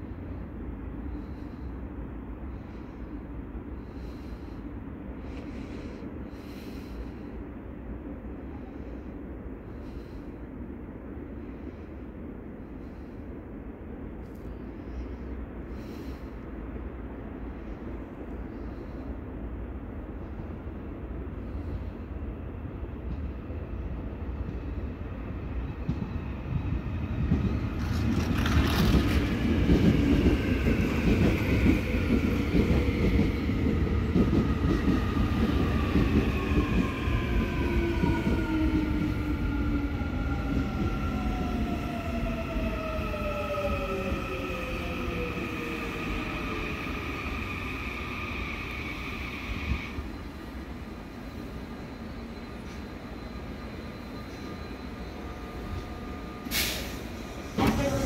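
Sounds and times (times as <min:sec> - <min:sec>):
subway train wheels rumbling on rails: 0:00.0 - 0:58.0
train braking: 0:27.3 - 0:58.0.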